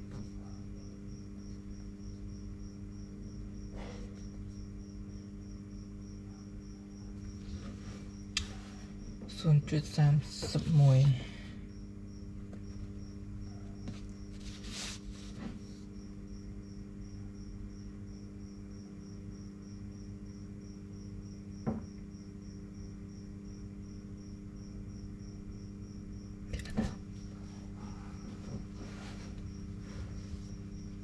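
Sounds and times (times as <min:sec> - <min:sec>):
low electrical hum: 0:00.0 - 0:31.0
paper rustling: 0:13.9 - 0:15.5.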